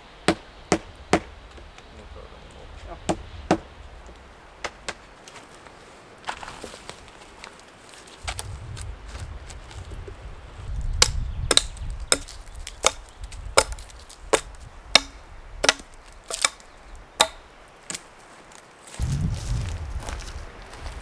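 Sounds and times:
hatchet chopping wood: 0.3 - 1.3, 3.1 - 3.6, 11.0 - 16.6, 17.2 - 18.0.

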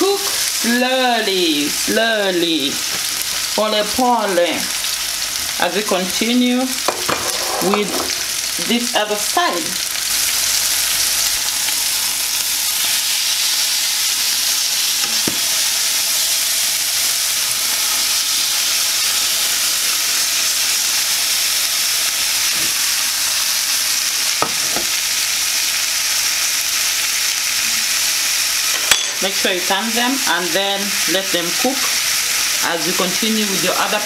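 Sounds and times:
chicken sizzling in a frying pan: 0.0 - 34.0
fork knocking in pan: 6.9 - 8.2, 15.0 - 15.5, 24.4 - 24.9.

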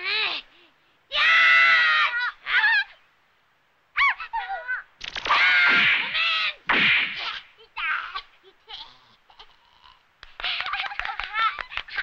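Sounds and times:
cartoon voices shouting and yelping: 1.1 - 3.1, 3.9 - 8.7.

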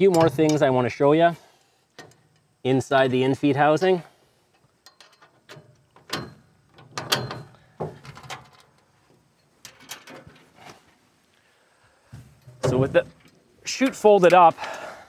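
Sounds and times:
metal clicks and clunks: 0.0 - 0.8, 1.9 - 2.5, 4.5 - 10.7, 12.2 - 14.8.

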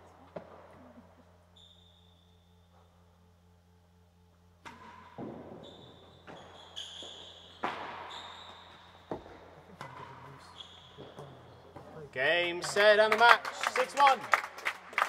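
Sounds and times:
ball striking walls and floor: 0.3 - 0.8, 4.6 - 12.7
ball knocked by rackets: 7.6 - 8.1.

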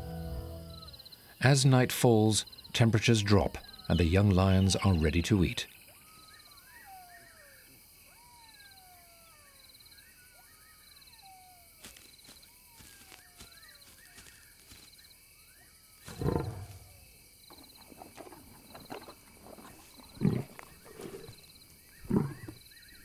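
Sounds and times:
crickets trilling: 0.7 - 23.0
lion growling: 16.1 - 17.0, 17.8 - 22.6.

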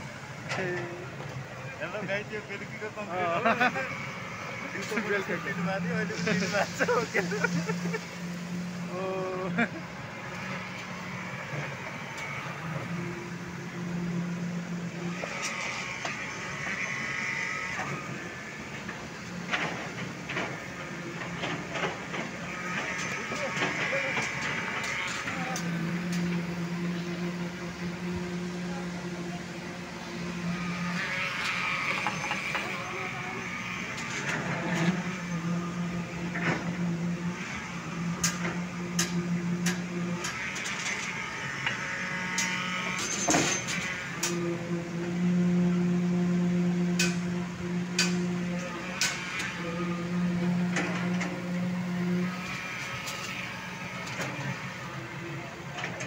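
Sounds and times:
concrete pump humming: 0.0 - 56.0
machinery drone: 0.0 - 56.0.

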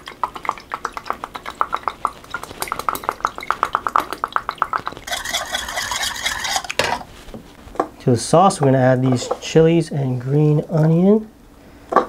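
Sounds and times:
liquid glugging from a bottle: 0.0 - 7.0
spoon stirring in ceramic bowl: 0.0 - 7.2.

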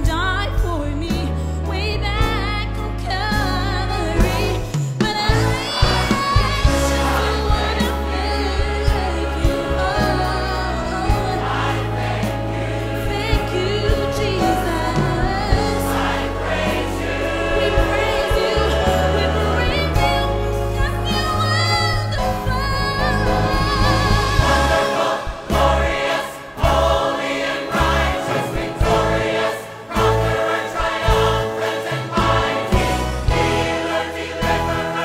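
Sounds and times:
woman singing with vibrato: 0.0 - 11.4, 18.0 - 24.9
orchestra playing: 1.1 - 35.0
church choir singing: 5.2 - 35.0.

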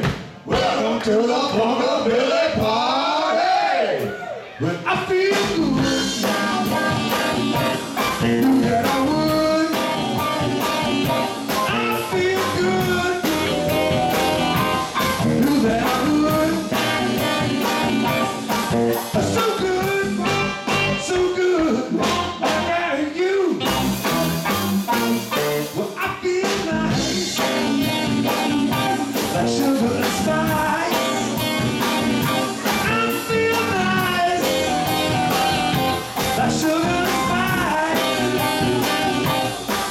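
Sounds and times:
live blues band: 0.0 - 39.9
drum beat: 5.0 - 20.0, 26.6 - 39.9
saxophone lead: 5.7 - 23.0, 23.6 - 25.8, 27.0 - 39.9.

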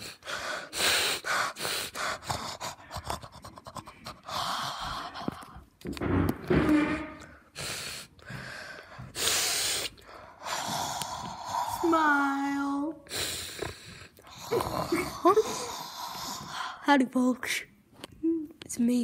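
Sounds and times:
child snorting and huffing: 0.0 - 5.2, 7.5 - 16.8.

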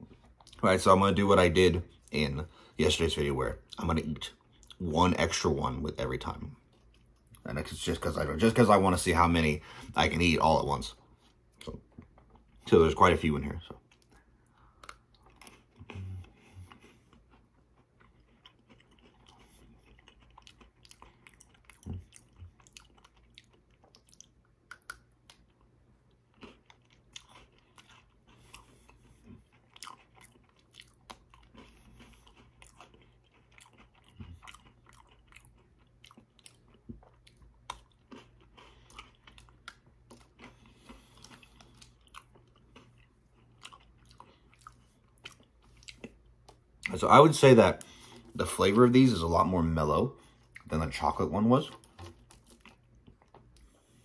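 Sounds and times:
chewing crunchy biscuit sticks: 0.0 - 54.0.

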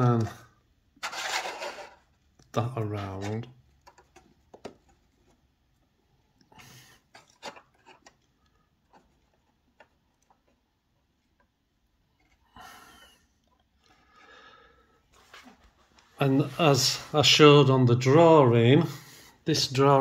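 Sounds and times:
plastic model clicks and knocks: 3.8 - 5.0.

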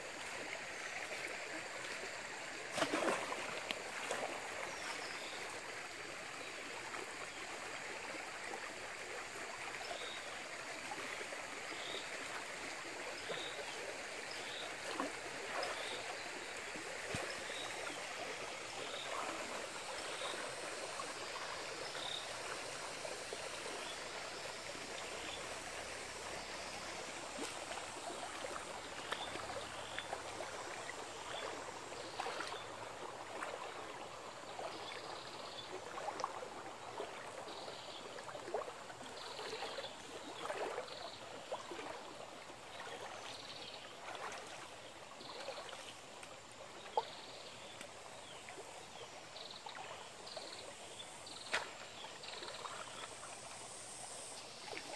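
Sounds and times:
stream flowing: 0.0 - 54.9
sharp splash: 2.7 - 5.0, 17.1 - 17.6, 51.4 - 52.8
people wading through water: 26.0 - 49.0.

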